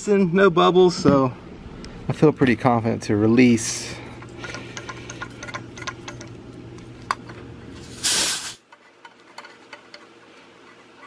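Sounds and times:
low steady hum: 0:00.0 - 0:11.0
fittings clicking: 0:04.2 - 0:07.4
loud gas hiss: 0:07.8 - 0:08.6.

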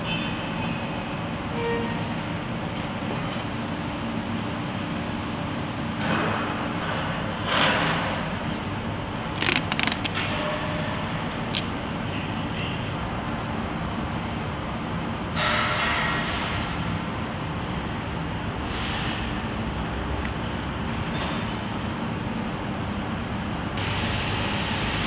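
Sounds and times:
steady factory hum: 0:00.0 - 0:25.0
packing tape rasping off roll: 0:09.3 - 0:10.4
tape crackling: 0:09.3 - 0:10.4.

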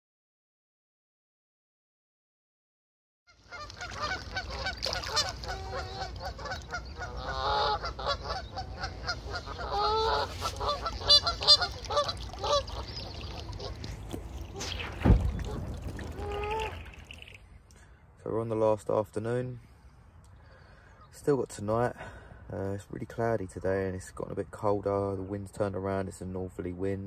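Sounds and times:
geese honking: 0:03.4 - 0:17.3.

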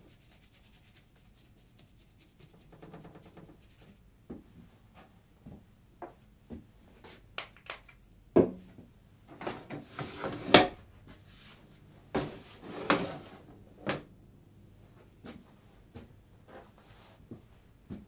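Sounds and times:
rubbing on drawing board: 0:00.0 - 0:04.0.

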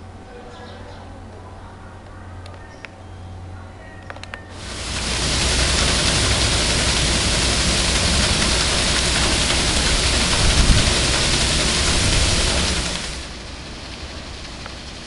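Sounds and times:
water splashing on waterwheel: 0:04.5 - 0:15.0.

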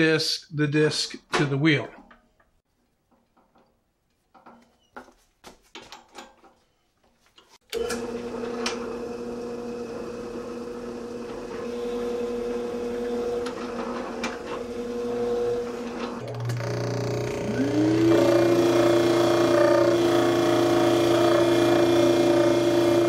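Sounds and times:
drill press humming: 0:07.7 - 0:23.0
drill bit boring into wood: 0:14.7 - 0:23.0.

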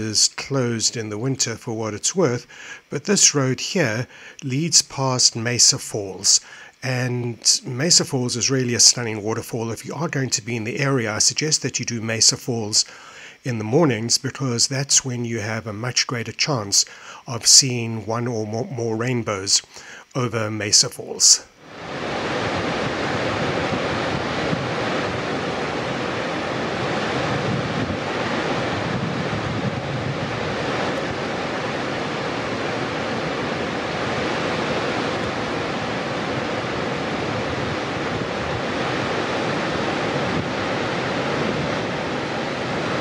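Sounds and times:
waterfall rushing: 0:21.7 - 0:43.0.

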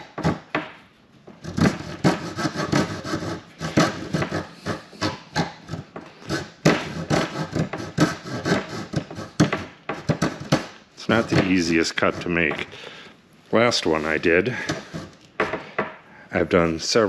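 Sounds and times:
coping saw cutting wood: 0:00.0 - 0:00.5, 0:01.4 - 0:13.0, 0:13.9 - 0:15.2.

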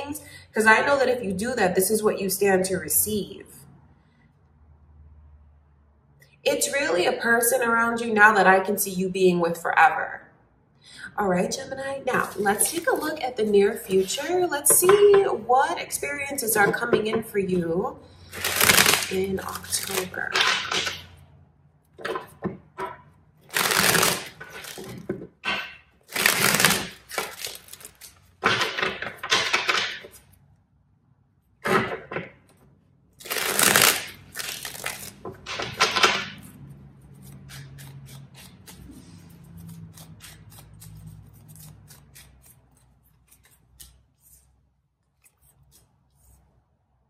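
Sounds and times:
cards being shuffled: 0:12.1 - 0:13.1, 0:18.3 - 0:21.0, 0:23.5 - 0:25.2, 0:26.1 - 0:30.3, 0:33.2 - 0:36.4.

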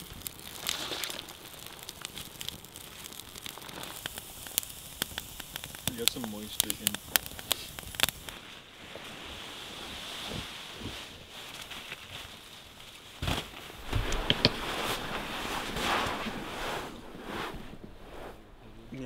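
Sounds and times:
tent fabric rustling: 0:08.3 - 0:19.0.

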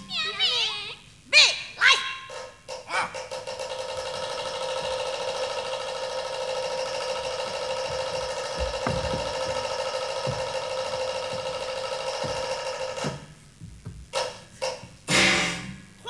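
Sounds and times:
low thuds: 0:07.4 - 0:16.0.

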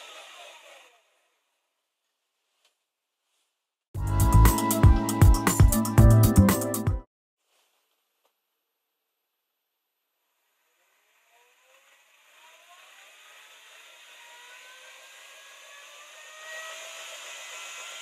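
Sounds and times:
electric motor whirring: 0:10.5 - 0:18.0.

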